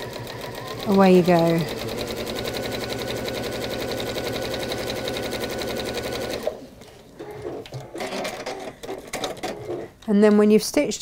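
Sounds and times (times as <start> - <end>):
electric sewing machine stitching: 0.0 - 6.6.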